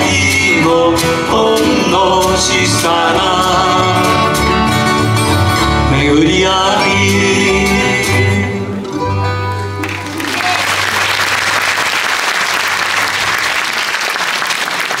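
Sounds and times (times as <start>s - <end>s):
audience applause: 9.8s - 15.0s.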